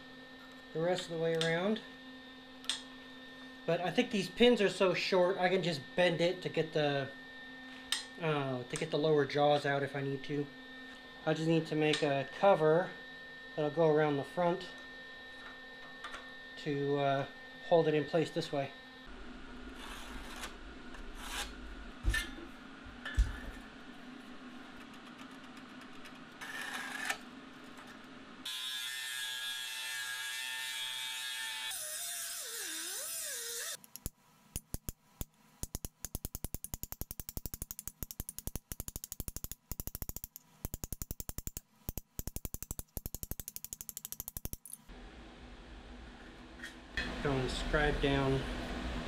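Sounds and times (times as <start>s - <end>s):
rotary tool grinding metal: 28.4s - 34.1s.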